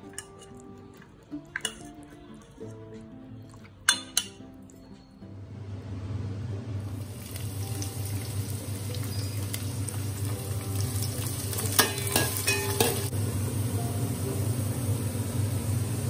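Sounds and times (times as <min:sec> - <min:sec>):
metal spoon clinking on pan: 0:00.0 - 0:00.6, 0:01.6 - 0:02.0, 0:03.9 - 0:05.0, 0:11.6 - 0:13.1
onions sizzling in hot oil: 0:06.9 - 0:16.0.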